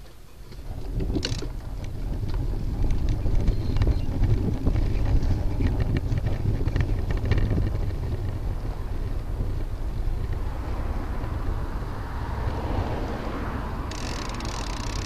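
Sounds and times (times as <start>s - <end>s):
tyres rumbling on rough concrete: 0.0s - 11.4s
wind buffeting microphone: 0.0s - 15.0s
clicks and rattles: 0.4s - 8.4s, 13.9s - 15.0s.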